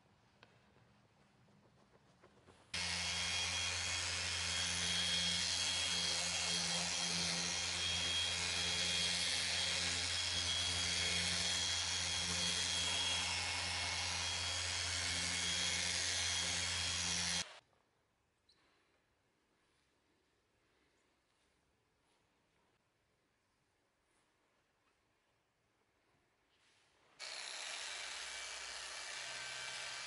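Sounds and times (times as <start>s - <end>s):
polisher motor whirring: 2.8s - 17.6s, 27.2s - 30.0s.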